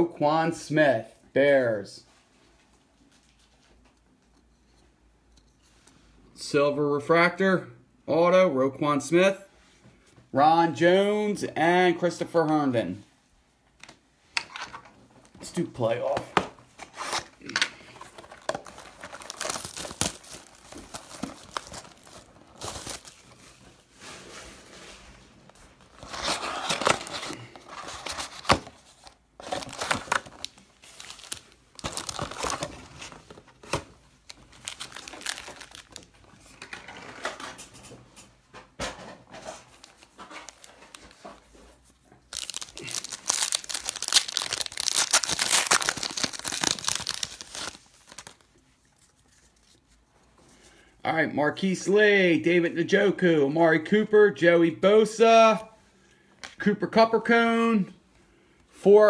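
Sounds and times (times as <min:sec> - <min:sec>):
packaging crinkling and tearing: 0:16.8 - 0:23.7, 0:25.7 - 0:37.5, 0:39.7 - 0:41.5, 0:42.3 - 0:49.9.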